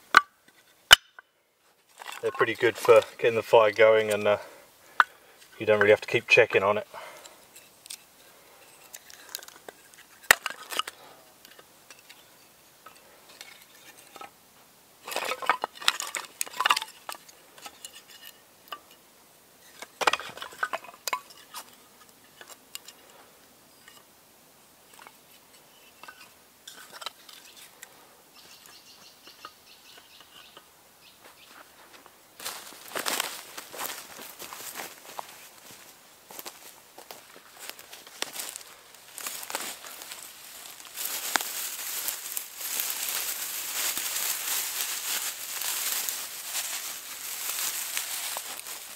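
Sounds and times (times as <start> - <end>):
kindling sticks clattering together: 8.6 - 12.2, 15.0 - 19.0, 19.7 - 23.0.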